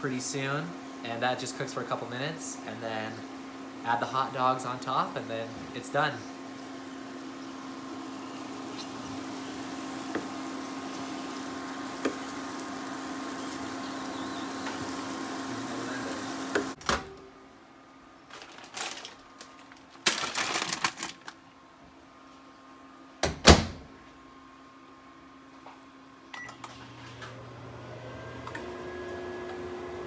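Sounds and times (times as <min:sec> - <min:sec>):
hot plate hum and hiss: 0:00.0 - 0:30.0.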